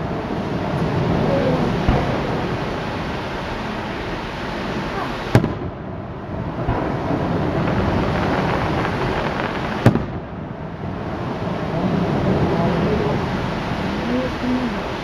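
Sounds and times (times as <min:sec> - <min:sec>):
noisy fireworks rumble: 0:00.0 - 0:15.0
firework shells bursting: 0:05.2 - 0:05.9, 0:06.6 - 0:10.3.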